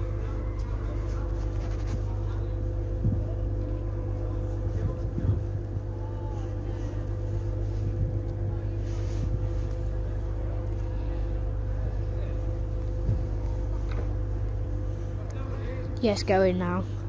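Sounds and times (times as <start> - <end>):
diesel engines idling drone: 0.0 - 17.0.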